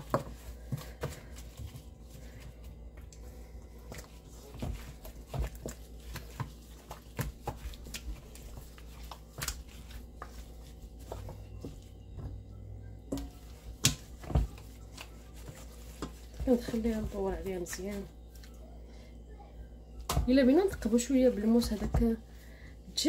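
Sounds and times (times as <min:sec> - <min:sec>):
wet squelches of marinade: 0:00.0 - 0:18.6
glove rustles: 0:13.4 - 0:18.5.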